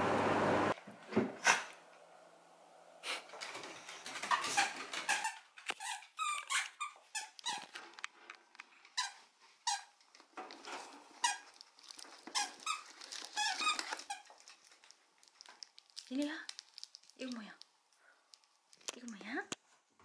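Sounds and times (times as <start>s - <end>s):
shopping bags crackling: 10.4s - 17.6s.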